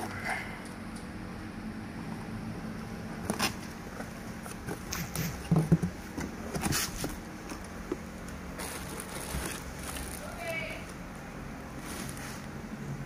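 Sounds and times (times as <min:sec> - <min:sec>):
cardboard and plastic rustling: 0:03.1 - 0:12.6.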